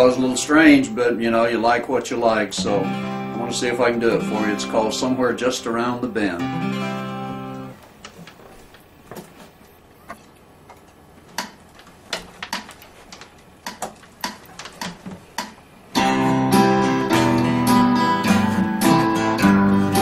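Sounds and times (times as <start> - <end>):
acoustic guitar strumming: 0.0 - 7.8, 15.9 - 20.0
acoustic guitar chord ringing: 2.4 - 7.8, 15.9 - 20.0.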